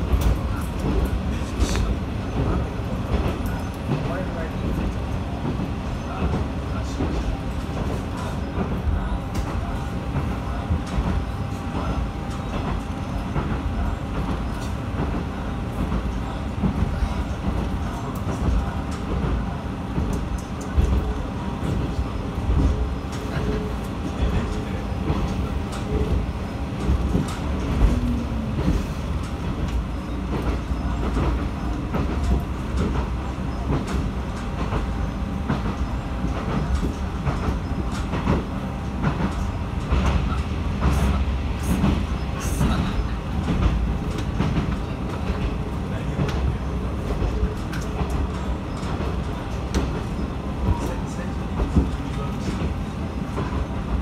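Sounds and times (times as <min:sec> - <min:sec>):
railcar engine rumble: 0:00.0 - 0:54.0.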